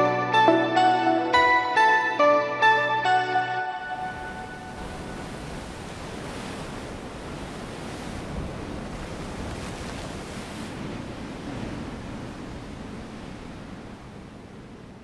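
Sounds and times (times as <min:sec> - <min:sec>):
sea waves washing: 0:02.6 - 0:15.0
wind: 0:03.7 - 0:15.0.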